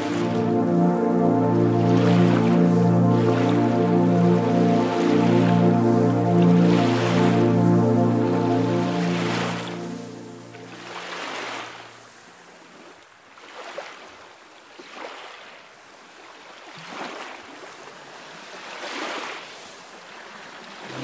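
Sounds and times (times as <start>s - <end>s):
sea waves washing in: 0.0s - 12.9s, 20.6s - 21.0s.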